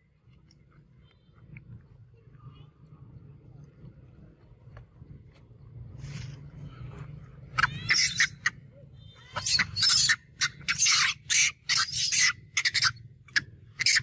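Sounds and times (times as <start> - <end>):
monkey screaming: 7.5 - 8.6, 9.2 - 14.0.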